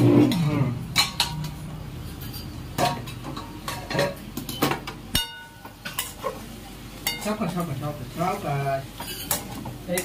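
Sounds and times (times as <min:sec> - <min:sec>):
dishes clinking and knocking: 0:00.0 - 0:06.3.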